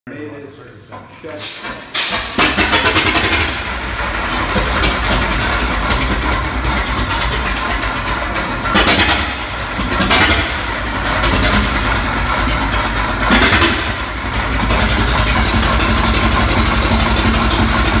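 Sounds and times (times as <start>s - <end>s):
stationary engine running: 1.9s - 18.0s.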